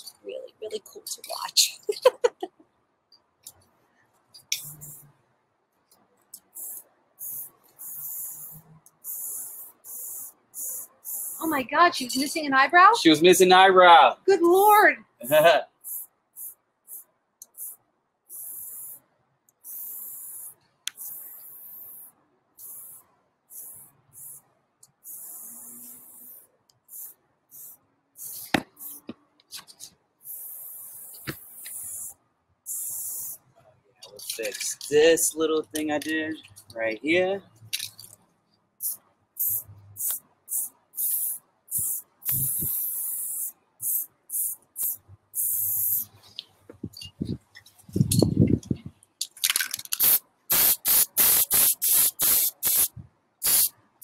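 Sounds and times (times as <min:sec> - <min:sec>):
spray paint can hissing: 0:04.4 - 0:05.1, 0:06.4 - 0:11.6, 0:15.3 - 0:19.0, 0:19.6 - 0:29.2, 0:30.2 - 0:33.4, 0:38.8 - 0:46.2, 0:49.4 - 0:53.8.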